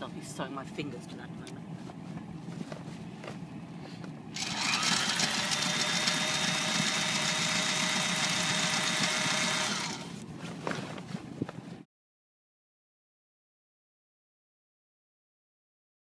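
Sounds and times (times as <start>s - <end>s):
sewing machine stitching: 4.4s - 10.1s.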